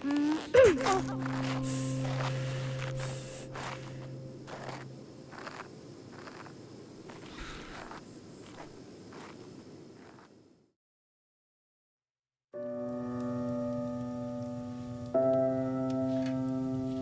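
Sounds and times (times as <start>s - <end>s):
low hum: 0.0s - 5.7s
crickets chirping: 0.0s - 10.8s.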